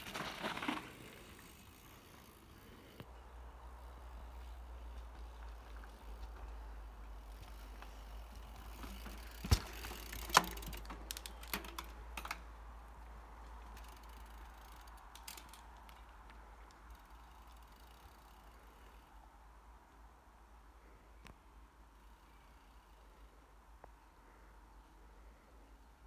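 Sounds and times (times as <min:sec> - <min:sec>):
bike clicks and rattles: 0:00.0 - 0:03.2, 0:04.9 - 0:12.7, 0:13.3 - 0:19.1
bike hitting the ground: 0:07.6 - 0:12.4.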